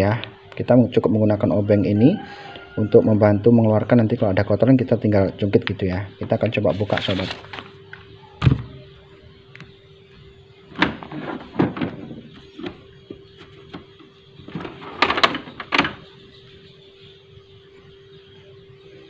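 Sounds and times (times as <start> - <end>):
faint hum: 0.0 - 19.0
plastic scanner lid knocks and rattles: 10.8 - 16.1.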